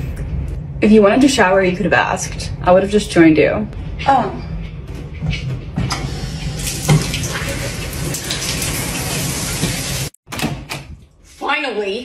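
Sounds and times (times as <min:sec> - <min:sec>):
shower spraying into a tub: 0:06.6 - 0:10.2.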